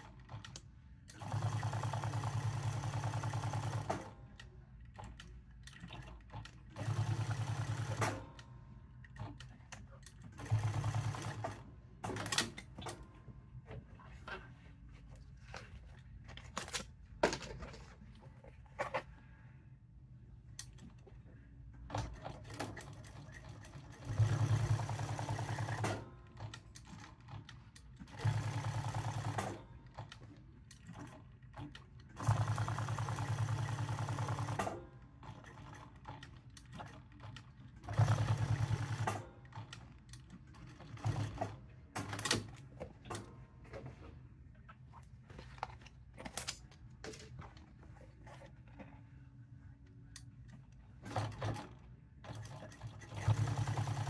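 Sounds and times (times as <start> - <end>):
sewing machine stitching: 21.9 - 30.2, 30.8 - 39.8, 51.0 - 54.0.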